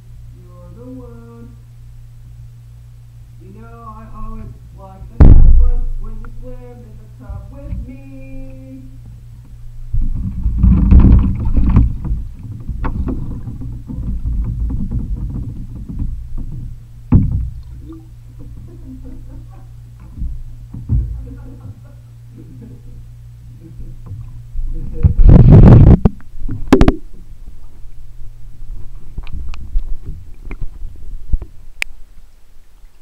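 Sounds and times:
steady low hum: 0:00.0 - 0:33.0
muffled water sloshing: 0:04.2 - 0:33.0
sharp knocks: 0:05.2 - 0:05.8, 0:09.9 - 0:18.8, 0:20.0 - 0:21.4.

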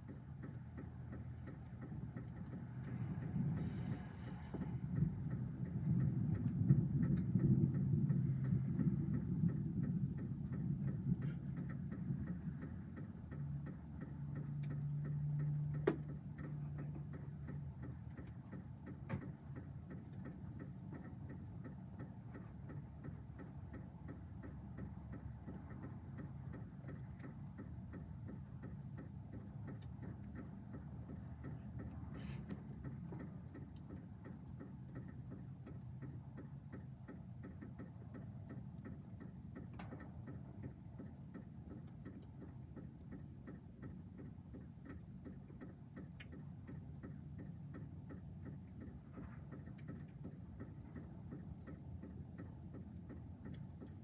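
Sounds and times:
faint ticks: 0:00.0 - 0:54.0
distant thunder rumbling: 0:04.6 - 0:12.8.

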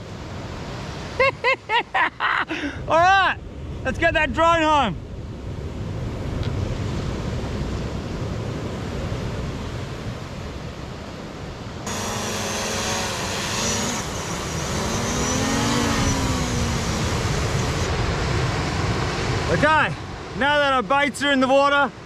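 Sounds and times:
wind: 0:00.0 - 0:22.0
droning motor hum: 0:11.9 - 0:17.9.

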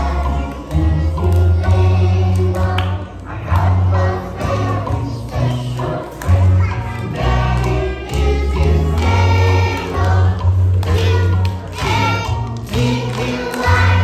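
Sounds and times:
children singing: 0:00.0 - 0:14.0.

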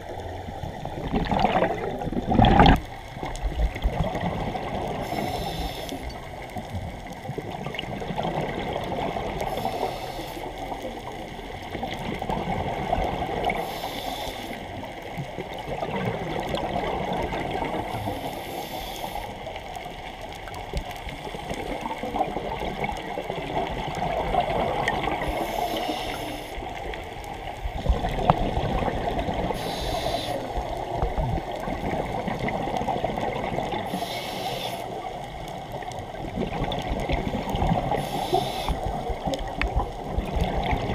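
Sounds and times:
gurgle of exhaled bubbles: 0:00.0 - 0:05.3, 0:07.1 - 0:09.6, 0:11.7 - 0:13.6, 0:15.4 - 0:18.0, 0:21.5 - 0:25.6, 0:27.7 - 0:34.0, 0:35.1 - 0:40.9
regulator inhalation hiss: 0:05.0 - 0:06.2, 0:09.5 - 0:10.6, 0:13.6 - 0:14.6, 0:17.9 - 0:19.4, 0:25.2 - 0:26.6, 0:29.6 - 0:30.6, 0:33.9 - 0:35.0, 0:37.9 - 0:38.9.

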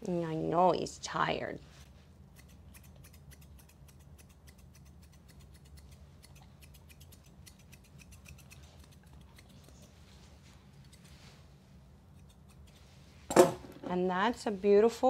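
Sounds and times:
shears snipping hair: 0:01.8 - 0:13.1.

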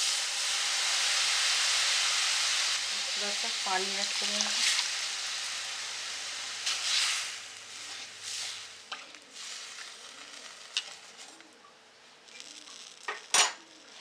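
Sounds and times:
oil sizzling as water poured: 0:00.0 - 0:11.4
spatula stirring curry: 0:06.6 - 0:11.4.

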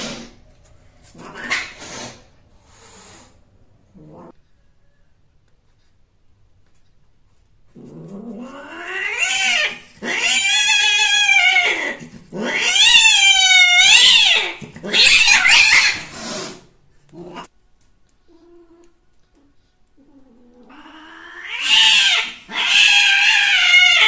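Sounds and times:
cat yowling: 0:08.4 - 0:16.1, 0:20.5 - 0:24.0.

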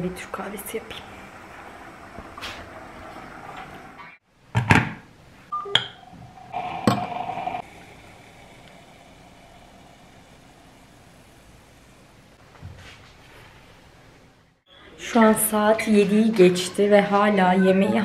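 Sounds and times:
faint steady hum: 0:05.2 - 0:15.0
harsh electronic tone: 0:05.6 - 0:08.0.

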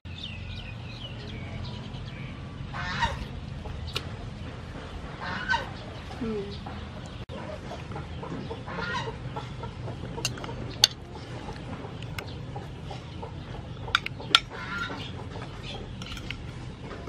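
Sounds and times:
low background hum: 0:00.1 - 0:17.0
fowl calling: 0:02.7 - 0:03.8, 0:05.1 - 0:05.8, 0:08.5 - 0:15.9
spoon clinking against bowl: 0:10.2 - 0:11.0.

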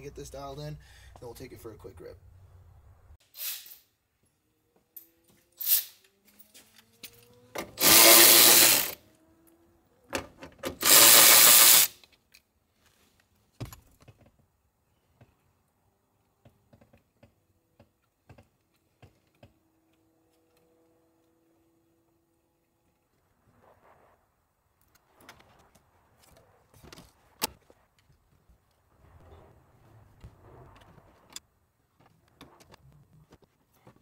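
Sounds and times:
power tool bursts: 0:07.7 - 0:09.0, 0:10.7 - 0:12.0.

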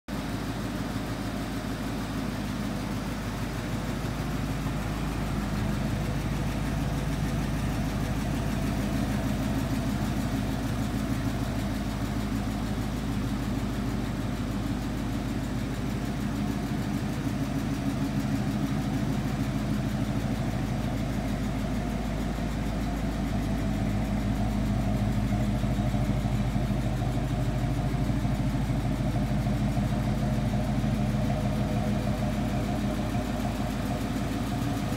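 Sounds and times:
car engine idling: 0:00.1 - 0:34.9.

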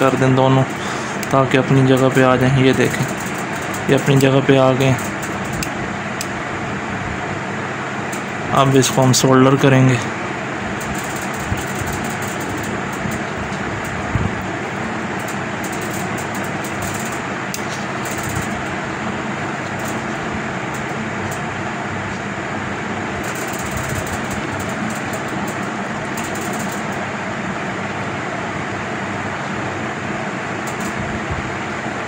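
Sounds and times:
machine hum: 0:00.0 - 0:32.0.

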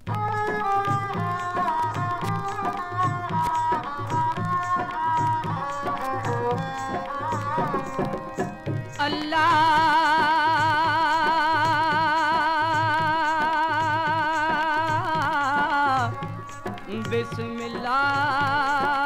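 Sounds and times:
folk music from vinyl record: 0:00.0 - 0:19.0.

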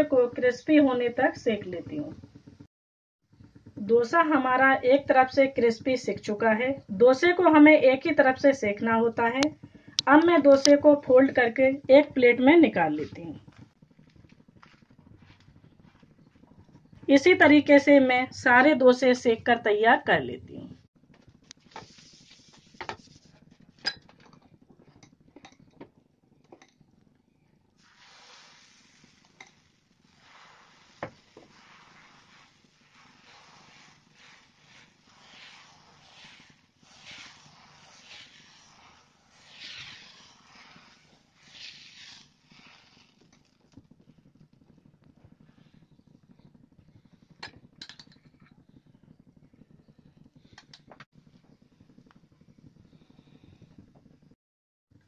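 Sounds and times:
gas burner rumble: 0:03.3 - 0:54.2
ladle scraping batter on pan: 0:27.8 - 0:43.5
steel spoon clicking on griddle: 0:47.5 - 0:48.2.

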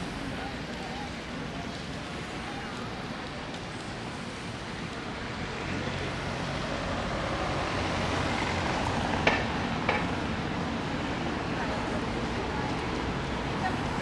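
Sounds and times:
distant traffic: 0:00.0 - 0:14.0
passers-by: 0:00.0 - 0:14.0.

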